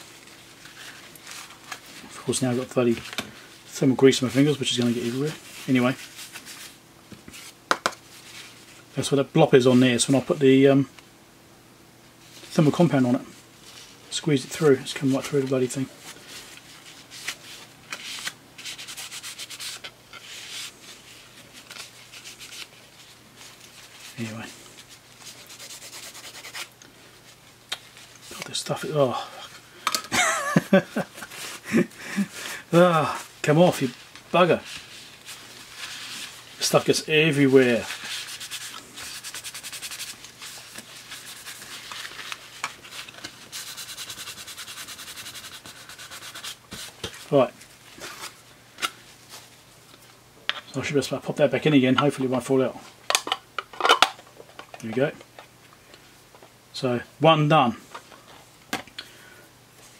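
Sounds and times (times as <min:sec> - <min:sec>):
tissue rubbing on plastic: 0:03.6 - 0:08.9, 0:12.2 - 0:28.9, 0:31.2 - 0:48.4.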